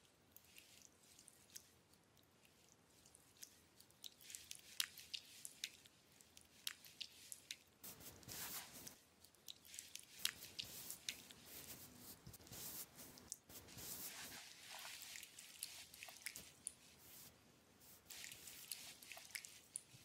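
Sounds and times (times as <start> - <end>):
wet squishes of gel on skin: 0.3 - 20.0
hands smearing rubs on skin: 6.5 - 9.0, 9.6 - 20.0.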